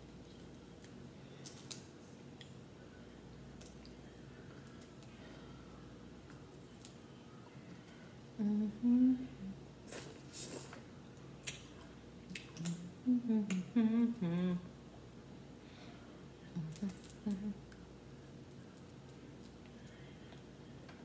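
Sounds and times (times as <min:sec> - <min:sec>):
woman humming: 0:08.4 - 0:09.6, 0:12.6 - 0:14.8, 0:16.5 - 0:17.7.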